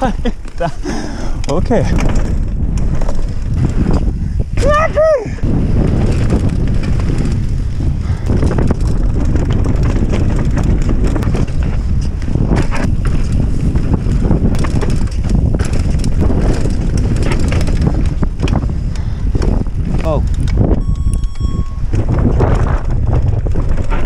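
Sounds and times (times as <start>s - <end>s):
bike rattling: 0.0s - 24.0s
wind buffeting microphone: 0.0s - 24.0s
tyres rolling over dirt and rocks: 1.5s - 4.5s, 5.4s - 20.3s.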